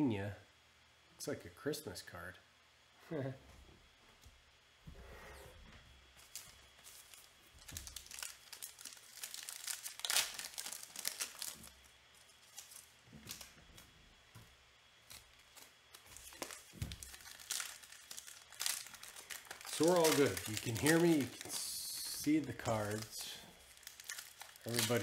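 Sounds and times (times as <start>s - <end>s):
foil wrappers crinkling and tearing: 6.2s - 25.0s.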